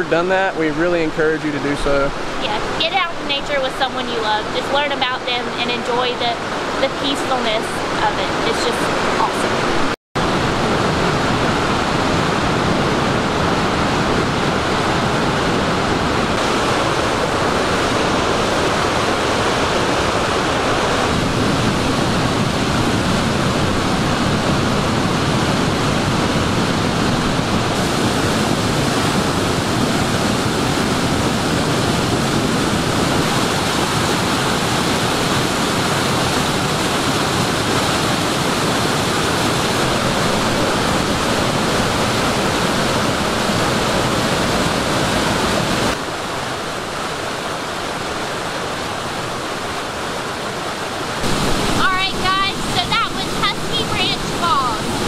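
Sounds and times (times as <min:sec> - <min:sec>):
mountain stream rushing: 0:00.0 - 0:55.0
small waterfall: 0:00.0 - 0:55.0.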